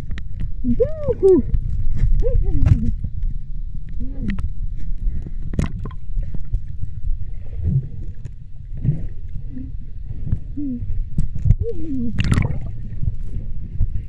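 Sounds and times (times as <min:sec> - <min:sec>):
underwater rumble of moving water: 0:00.0 - 0:14.0
sharp knocks underwater: 0:05.4 - 0:06.6, 0:12.2 - 0:13.2
water gurgles: 0:10.9 - 0:13.9.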